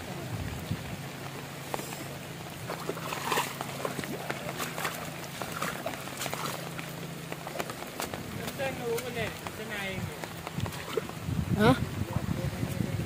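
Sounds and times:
heavy rain on water and grass: 0.0 - 13.0
loud splash: 2.6 - 6.8.

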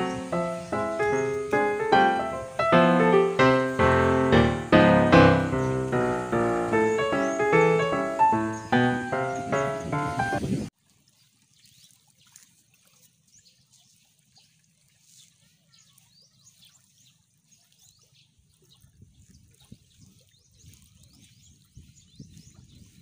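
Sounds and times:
water trickling among rocks: 10.7 - 23.0.

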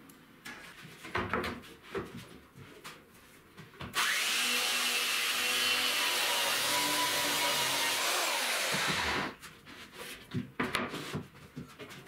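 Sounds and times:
belt sander running on plywood: 4.0 - 9.3.

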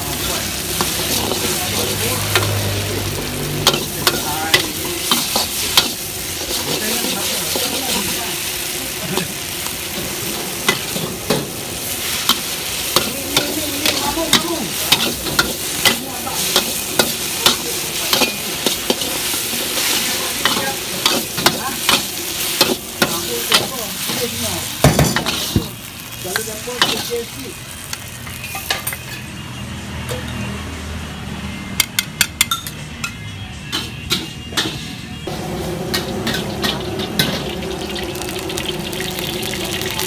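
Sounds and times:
noodles sizzling in a wok: 0.0 - 29.2, 34.6 - 40.0
metal spatulas scraping a wok: 3.6 - 8.2, 10.0 - 24.3, 33.6 - 35.2.

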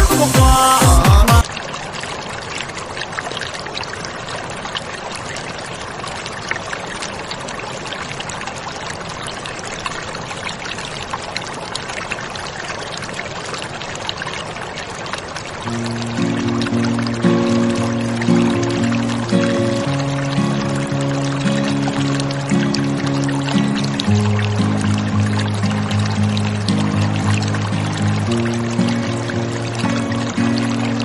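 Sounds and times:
music: 0.0 - 1.4, 15.7 - 31.0
aquarium water trickling: 1.4 - 31.0.

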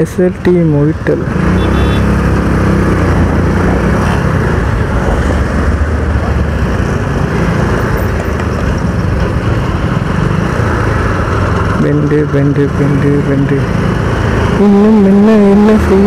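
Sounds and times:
road and wind rushing: 0.0 - 16.0
motorcycle engine running: 1.0 - 5.0.

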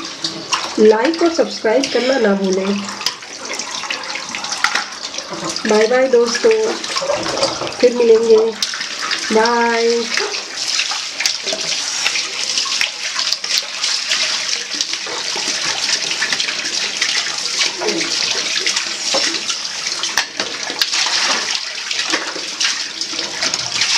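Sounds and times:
tap water running: 0.0 - 23.9
small splashes and plops: 10.0 - 23.9.

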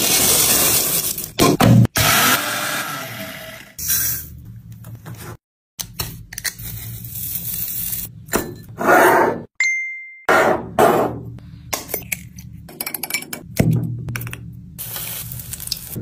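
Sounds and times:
cornflakes crunching and rustling: 0.0 - 1.3.

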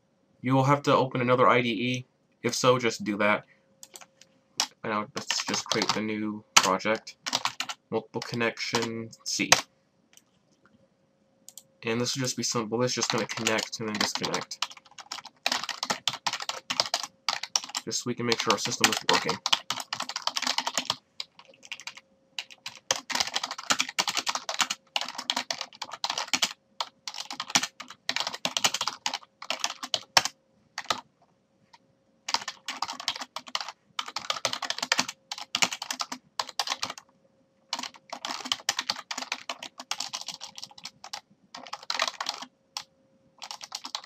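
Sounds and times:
faint steady hum: 0.0 - 44.0
typing on computer keyboard: 3.8 - 6.0, 6.6 - 8.9, 12.9 - 31.0, 32.3 - 37.1, 37.7 - 44.0.

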